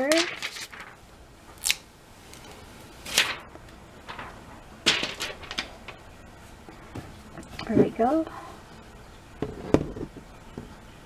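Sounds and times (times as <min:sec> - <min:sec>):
plastic film peeling: 0:00.0 - 0:06.1.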